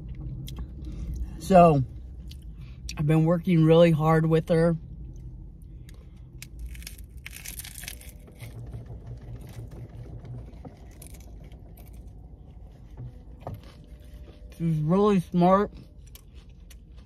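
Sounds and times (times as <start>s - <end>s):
crunchy taco being chewed: 5.0s - 17.0s.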